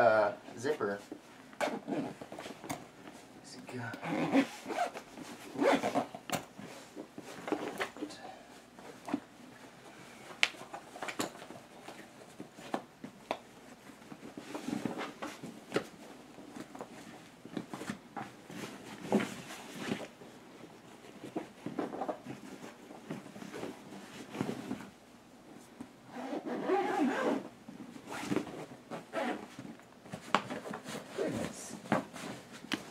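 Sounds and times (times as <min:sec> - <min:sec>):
costume rustling: 0:04.0 - 0:06.0, 0:13.6 - 0:32.9.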